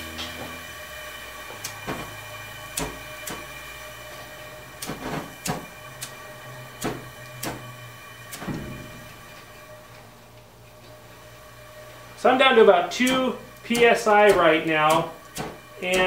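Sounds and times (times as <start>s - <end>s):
steady hum: 0.0s - 16.0s.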